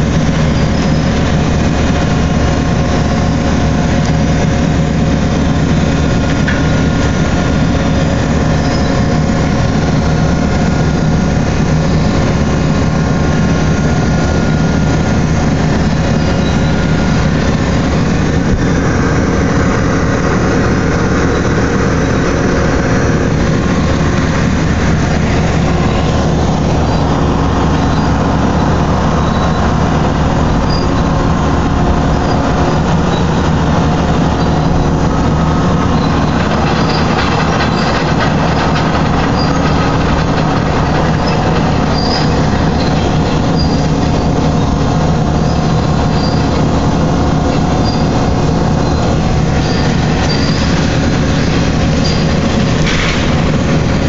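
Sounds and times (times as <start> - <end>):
heavy machinery drone: 0.0 - 54.0
high metallic squeaks: 32.1 - 46.8, 47.4 - 53.7.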